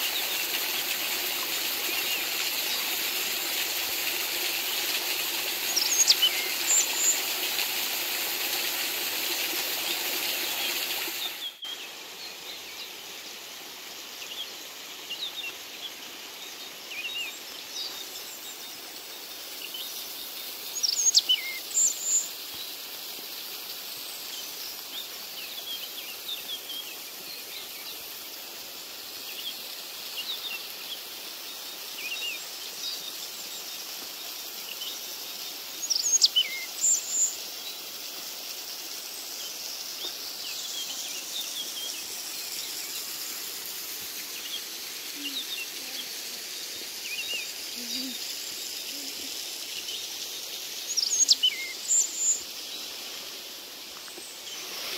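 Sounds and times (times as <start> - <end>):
water running from a spout: 0.0 - 11.6, 18.8 - 54.9
small waterfall rushing: 0.0 - 54.9.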